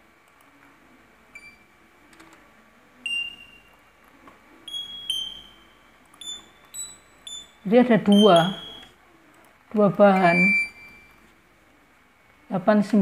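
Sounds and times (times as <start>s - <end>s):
short high-pitched beeps: 4.7s - 8.9s, 10.2s - 11.2s.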